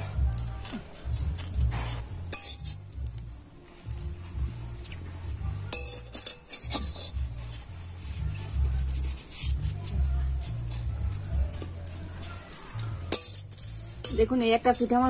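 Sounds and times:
low background music: 0.0 - 15.0
metal spatula scraping metal pan: 1.6 - 3.0, 5.7 - 9.7, 12.5 - 15.0.

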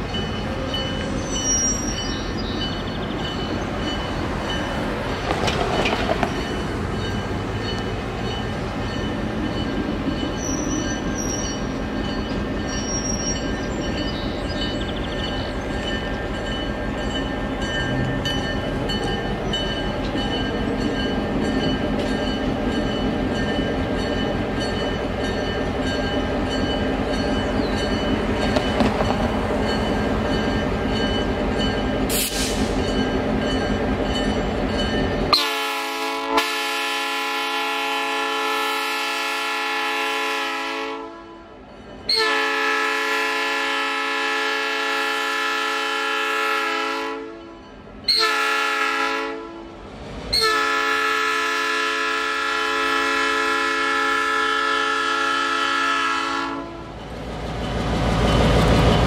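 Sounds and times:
diesel locomotives rumbling: 0.0 - 59.0.

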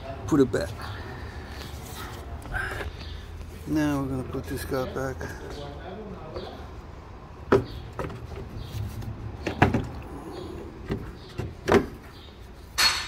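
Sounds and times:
hard plastic knocks and clunks: 7.5 - 8.5, 9.4 - 10.0, 10.8 - 12.1.

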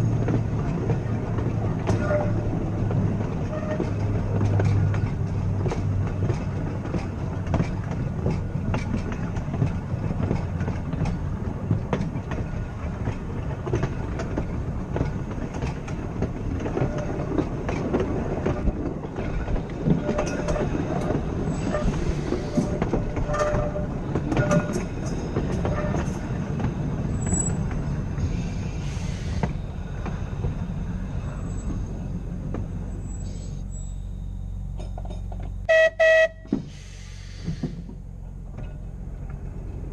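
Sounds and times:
rail joint clicks: 0.0 - 39.9
tram wheels rumbling: 0.0 - 39.9
wheel squeals: 1.8 - 2.5, 3.4 - 4.1, 19.8 - 26.3, 27.1 - 29.6, 31.2 - 32.1, 32.8 - 34.9.

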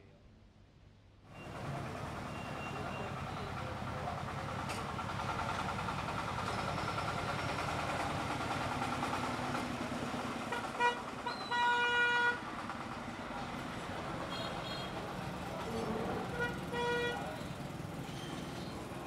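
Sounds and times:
street traffic: 1.2 - 19.0
vehicle horn honking: 10.5 - 12.4, 14.3 - 15.0, 16.2 - 17.5.

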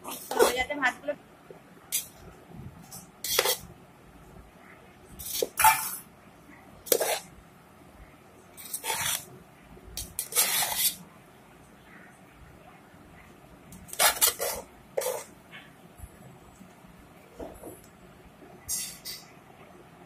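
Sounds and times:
metal spatula scraping rice in pot: 3.2 - 3.6, 6.9 - 7.3, 8.6 - 9.3, 10.0 - 11.0, 13.9 - 15.3.

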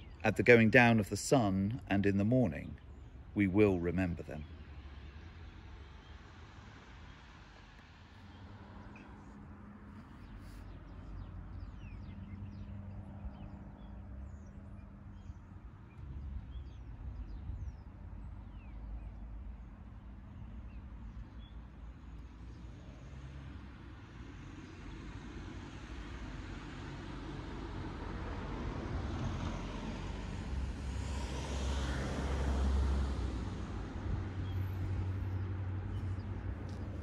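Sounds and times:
road traffic rumble: 0.0 - 37.0
small birds chirping: 6.9 - 23.0, 34.4 - 37.0
vehicle passing: 23.0 - 37.0.

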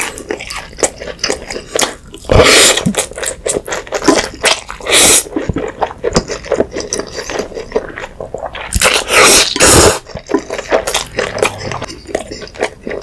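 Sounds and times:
wet chewing and smacking: 0.0 - 13.0
person slurping noodles: 2.2 - 3.2, 4.8 - 5.5, 8.8 - 12.1.

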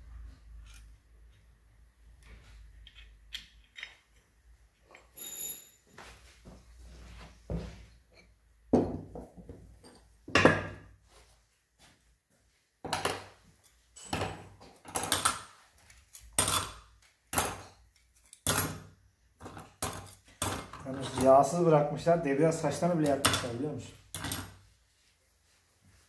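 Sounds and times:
metal parts knocking and clinking: 2.8 - 5.7, 13.9 - 15.4, 19.4 - 21.5, 23.0 - 24.6.

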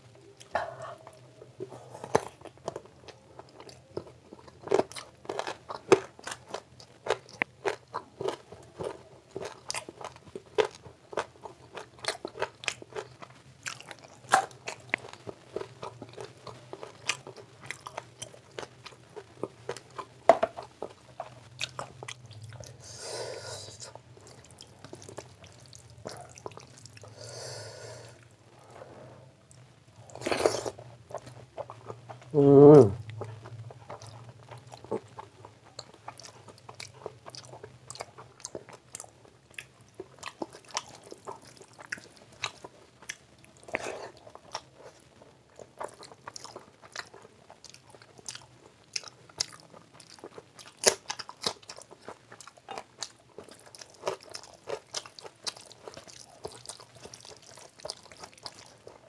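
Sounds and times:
wet smacking chewing: 45.8 - 59.0.

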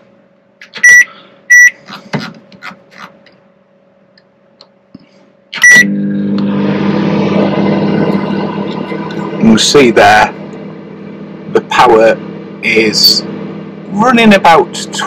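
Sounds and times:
microwave oven humming: 0.0 - 15.0
microwave keypad beeps: 0.8 - 1.8, 5.6 - 5.9.

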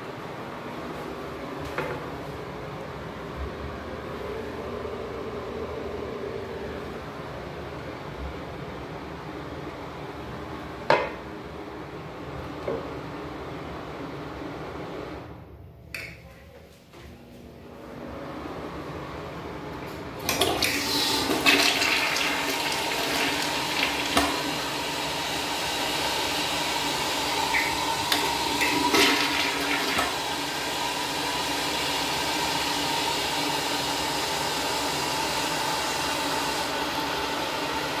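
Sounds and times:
toilet flushing: 20.1 - 38.0
toilet tank refilling hiss: 20.3 - 38.0.

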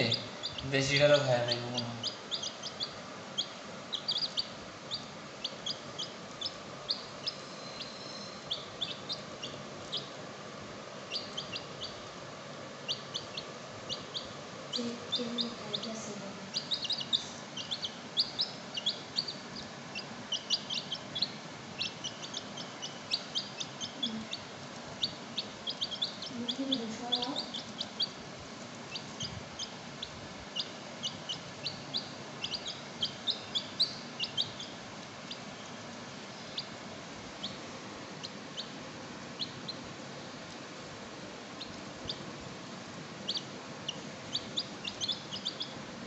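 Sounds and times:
animal squeaks and chirps: 1.5 - 10.1, 12.9 - 24.4, 25.0 - 28.2, 30.6 - 34.7, 43.3 - 45.7.

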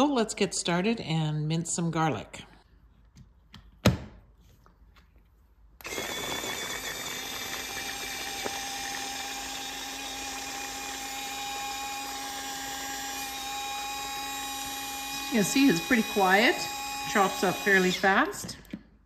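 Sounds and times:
mini chopper motor whine: 5.8 - 18.4.

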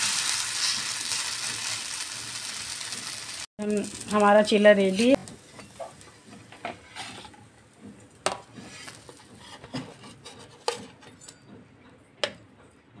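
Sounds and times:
metal spatula scraping iron griddle: 0.5 - 1.8, 6.6 - 7.4, 8.5 - 11.5.

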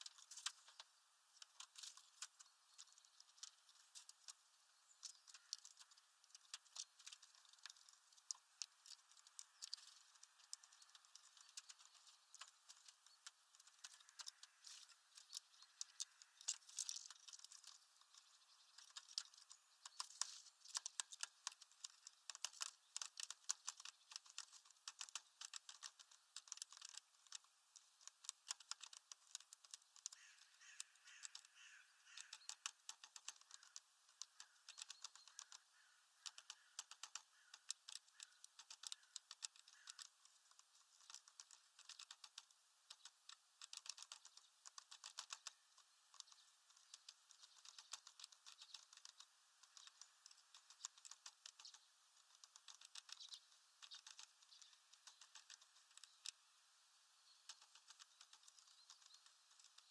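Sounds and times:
tapping and clicking on ledge: 18.8 - 53.2.

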